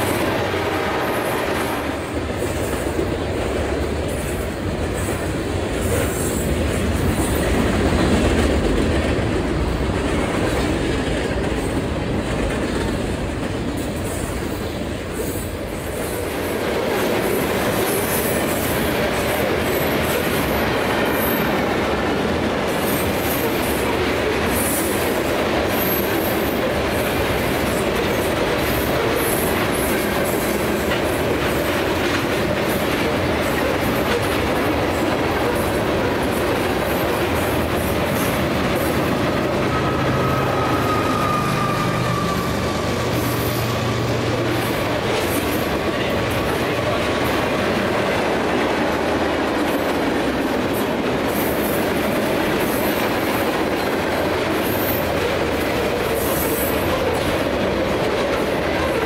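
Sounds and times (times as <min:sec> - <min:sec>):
steel wheels rumbling on rail: 0:00.0 - 0:59.0
high-pitched clatter and screech: 0:36.8 - 0:45.6.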